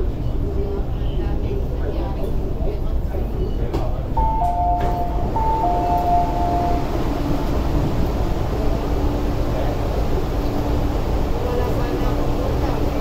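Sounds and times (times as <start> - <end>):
train ventilation hum: 0.0 - 13.0
two-tone electronic chime: 4.2 - 7.1
faint steady tone: 4.2 - 7.5.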